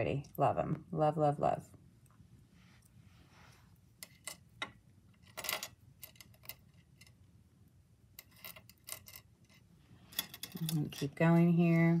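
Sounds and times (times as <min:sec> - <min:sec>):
metal jewelry clinking on countertop: 0:04.0 - 0:07.1, 0:08.2 - 0:11.6.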